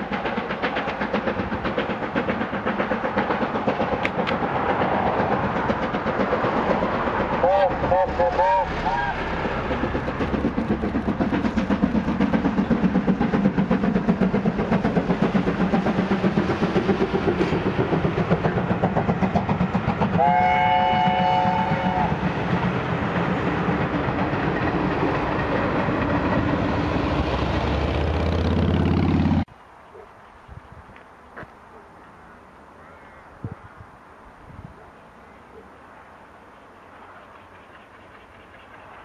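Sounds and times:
steam locomotive exhaust beats: 0.0 - 29.5
steam whistle chord: 20.2 - 22.1.

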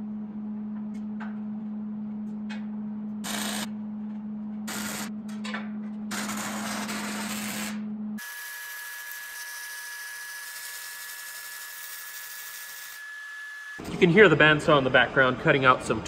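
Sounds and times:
low machine hum: 0.0 - 8.2.

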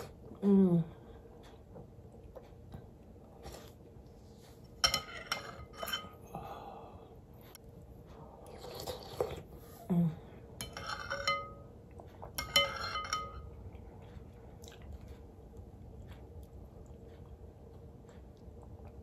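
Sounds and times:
chewing and mouth sounds: 8.1 - 9.6, 13.5 - 19.0
spoon clinking against glass: 10.6 - 11.7, 12.4 - 13.5.

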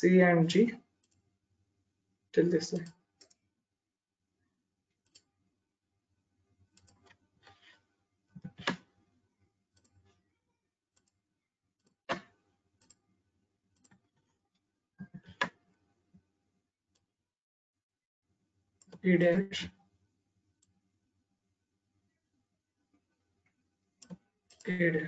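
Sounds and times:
computer mouse clicking: 2.8 - 3.4, 8.4 - 8.8, 13.8 - 14.0, 15.1 - 15.6, 24.0 - 24.6.

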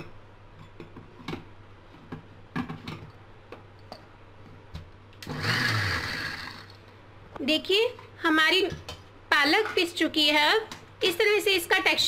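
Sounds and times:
mixer grinder motor grinding: 5.2 - 6.8.

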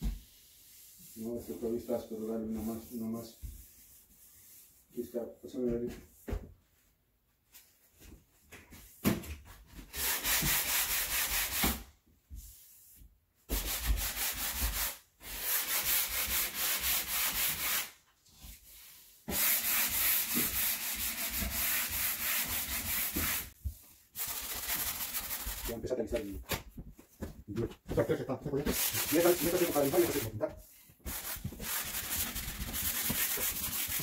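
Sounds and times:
sandpaper rubbing wood: 9.9 - 11.7, 13.5 - 18.0, 18.8 - 23.6, 24.2 - 25.8, 28.6 - 30.4, 31.0 - 34.0.

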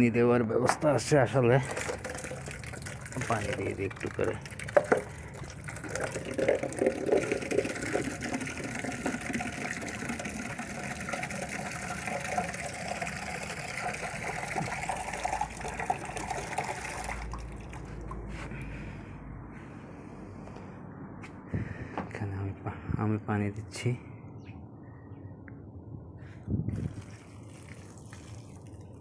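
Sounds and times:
water running from outdoor tap: 1.4 - 18.2, 26.8 - 29.0.

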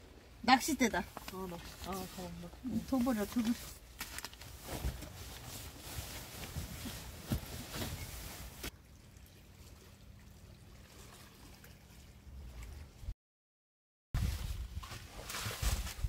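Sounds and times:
sleeping bag rustling: 1.1 - 8.7.

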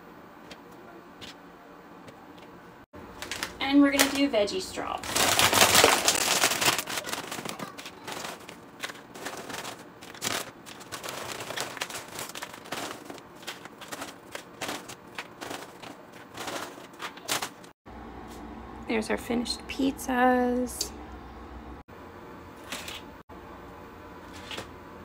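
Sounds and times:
plastic snack bag crinkling: 3.1 - 17.7.

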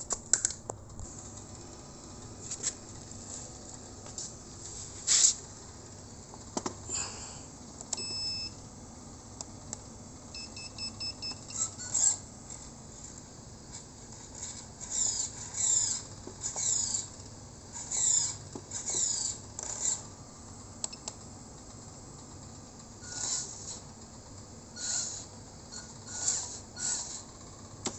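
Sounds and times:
electronic beeps: 8.0 - 8.6.

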